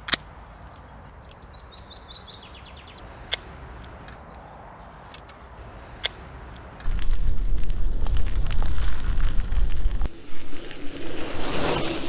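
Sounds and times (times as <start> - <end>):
low outdoor background: 0.0 - 12.0
songbird trilling: 0.6 - 3.0
sharp clicks: 3.3 - 4.4.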